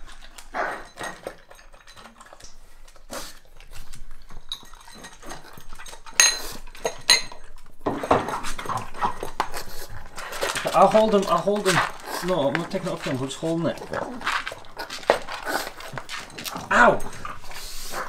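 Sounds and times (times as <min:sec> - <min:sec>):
dog crunching dry kibble: 0:00.0 - 0:18.0
kibble clinking against ceramic bowl: 0:04.2 - 0:09.5.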